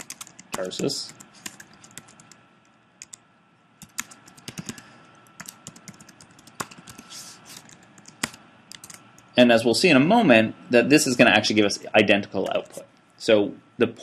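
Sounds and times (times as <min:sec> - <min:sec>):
typing on computer keyboard: 0:00.0 - 0:02.4, 0:03.0 - 0:03.2, 0:03.8 - 0:09.3.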